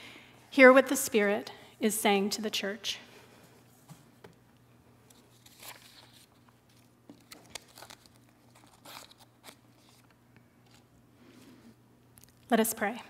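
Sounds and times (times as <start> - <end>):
papers rustling: 5.1 - 10.9.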